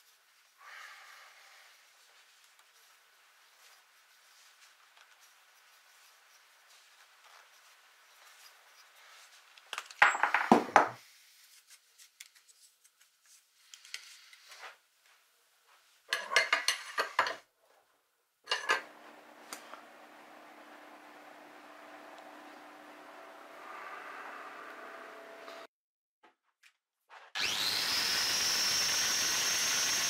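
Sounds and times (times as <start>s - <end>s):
metal tools clinking on workbench: 9.9s - 10.5s, 16.1s - 17.4s, 18.5s - 18.9s.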